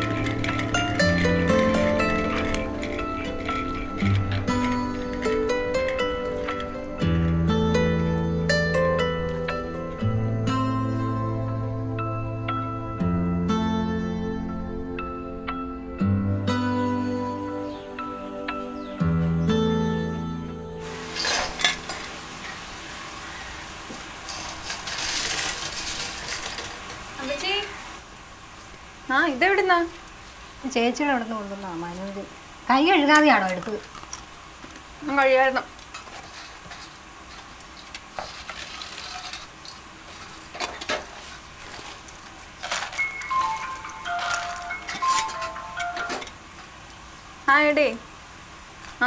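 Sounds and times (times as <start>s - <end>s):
fried chips rustling on newspaper: 0.0s - 6.9s, 24.0s - 27.8s, 35.1s - 45.6s
utensils and dishes clinking: 0.0s - 7.0s, 20.8s - 22.6s, 24.2s - 27.0s, 35.8s - 46.4s
food sizzling in a wok: 20.8s - 33.5s
mobile phone ringtone: 43.1s - 46.3s.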